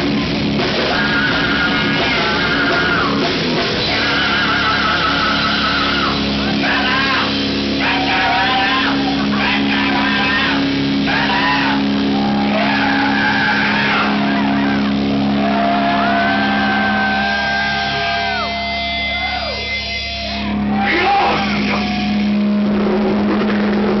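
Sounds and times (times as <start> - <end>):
distorted guitar and bass: 0.0 - 24.0
singer's high vocal wails: 3.8 - 19.8.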